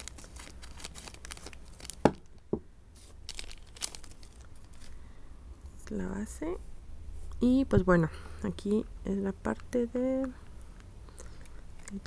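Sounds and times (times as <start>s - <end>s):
plastic bag crinkling: 0.0s - 5.1s, 11.1s - 12.0s.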